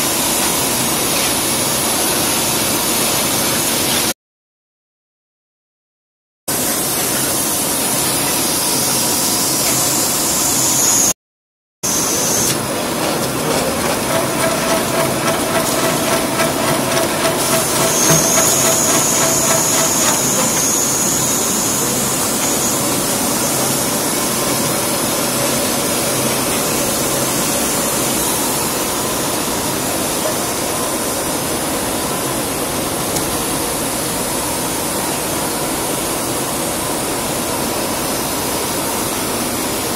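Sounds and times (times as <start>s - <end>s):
cable coiling machine running: 11.9s - 36.1s.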